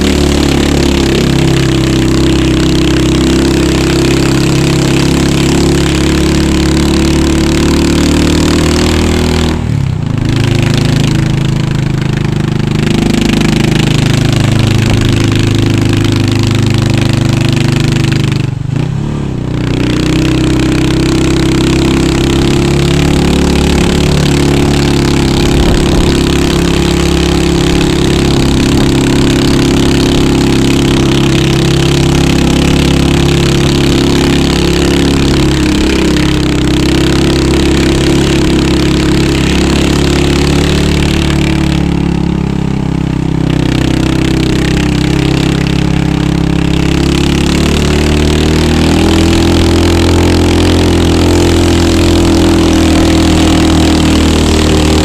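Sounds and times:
motorcycle engine running: 0:00.0 - 0:55.0
wind rush over microphone: 0:25.2 - 0:27.1.

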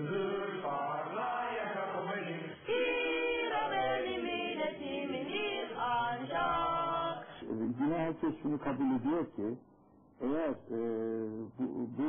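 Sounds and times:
choir singing: 0:00.0 - 0:07.3.

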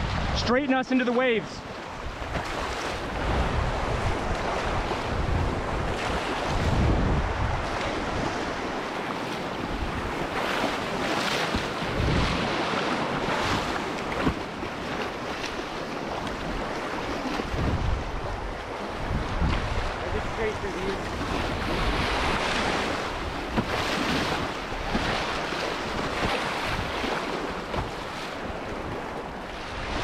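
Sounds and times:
wind buffeting microphone: 0:00.0 - 0:00.5, 0:01.6 - 0:30.0
river waves rushing and splashing: 0:00.0 - 0:30.0.

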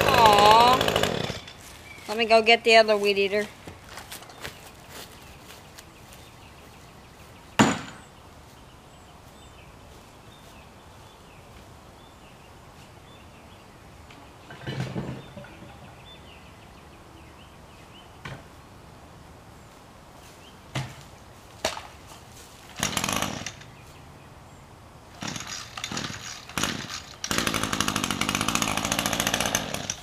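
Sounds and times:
sharp knocks: 0:07.6 - 0:08.0.

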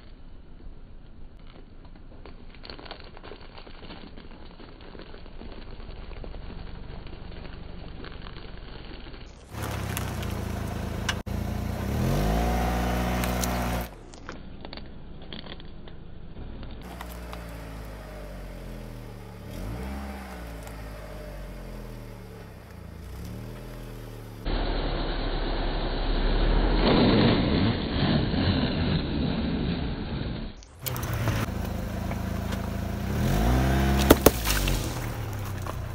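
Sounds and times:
crackling and crunching under tyre: 0:00.0 - 0:24.5, 0:26.5 - 0:35.9
car engine running: 0:09.3 - 0:26.8, 0:30.6 - 0:35.9
carton bursting with sharp pop: 0:34.0 - 0:35.2.

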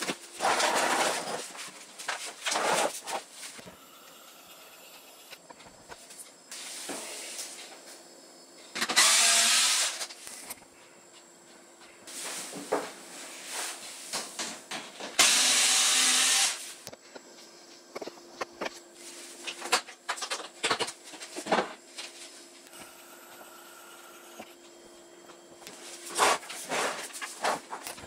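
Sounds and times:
cordless screwdriver whirring: 0:08.9 - 0:10.0, 0:15.2 - 0:16.6.

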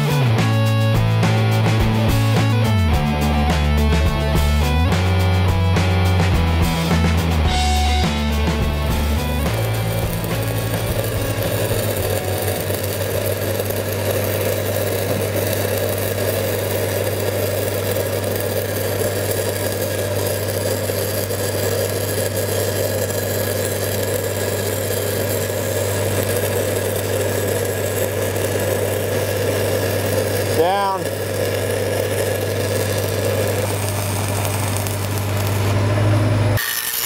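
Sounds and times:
welding arc crackling: 0:00.0 - 0:37.0
welding machine engine humming: 0:00.0 - 0:37.0.

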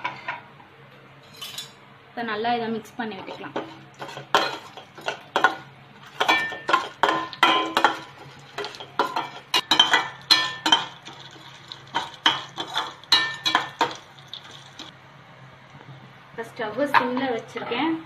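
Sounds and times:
metal spoon scraping pan: 0:03.2 - 0:14.9
steel pan ringing: 0:08.8 - 0:11.0, 0:12.2 - 0:14.9.

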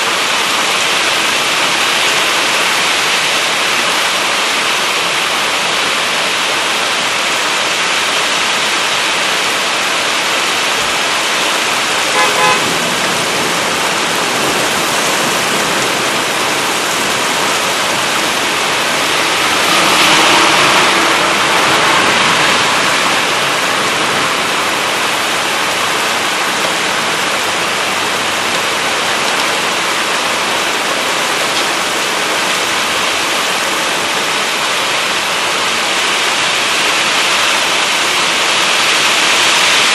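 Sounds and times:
heavy rain pouring: 0:00.0 - 0:39.9
gusty wind: 0:00.1 - 0:39.9
car horn toot: 0:12.0 - 0:13.0.

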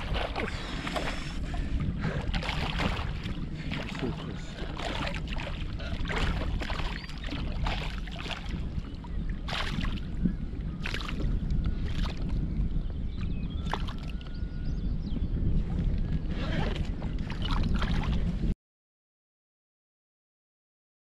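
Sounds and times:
wind rumble on microphone: 0:00.0 - 0:18.6
fish thrashing and splashing: 0:02.3 - 0:08.6, 0:09.4 - 0:10.0.

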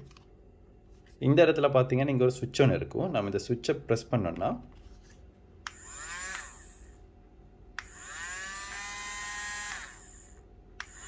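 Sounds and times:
small motor whirring: 0:05.7 - 0:07.0, 0:07.8 - 0:11.0.

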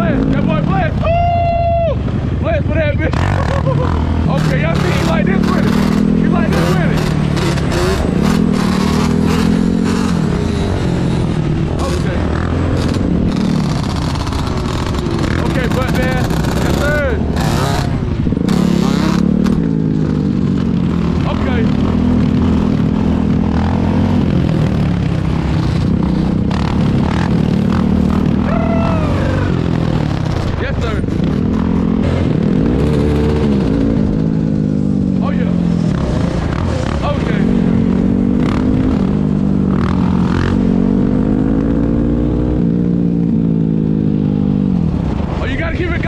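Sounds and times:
quad engines running: 0:00.0 - 0:46.0.

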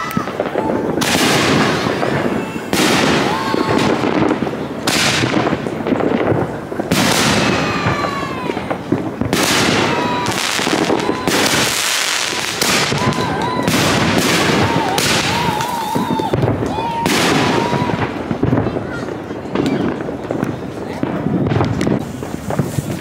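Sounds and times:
fireworks bangs: 0:00.0 - 0:23.0
fireworks hissing and crackling: 0:00.0 - 0:23.0.

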